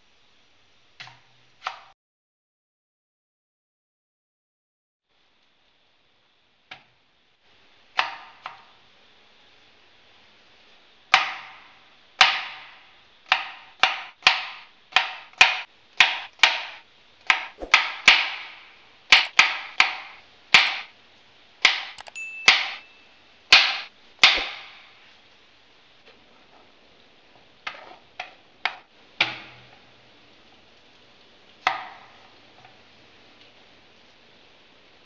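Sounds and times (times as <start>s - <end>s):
knife chopping cucumber on board: 17.6s - 17.8s, 24.3s - 24.6s.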